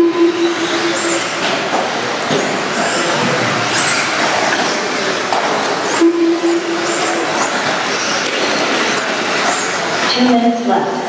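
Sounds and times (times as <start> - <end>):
steady low tone: 0.0 - 1.4, 6.0 - 7.3
electric motor whine of racing cars: 0.0 - 10.3.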